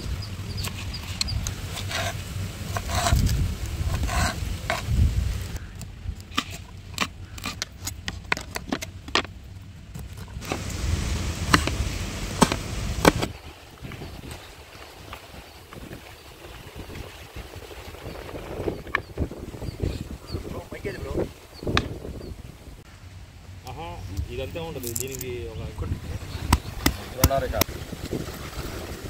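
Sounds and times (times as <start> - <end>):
utensil scraping and knocking pot: 0.6 - 5.0
food sizzling: 10.4 - 20.3.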